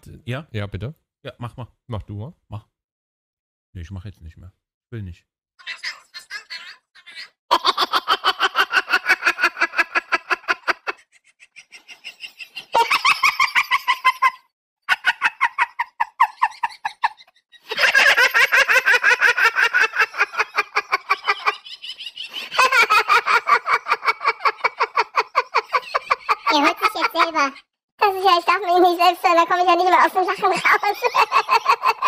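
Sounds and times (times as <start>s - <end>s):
high-pitched cackling: 5.6s - 11.2s.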